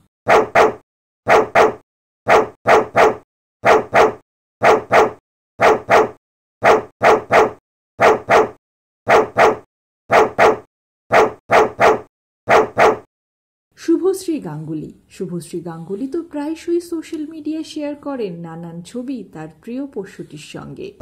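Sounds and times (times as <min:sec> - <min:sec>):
dog barking: 0:00.3 - 0:13.1.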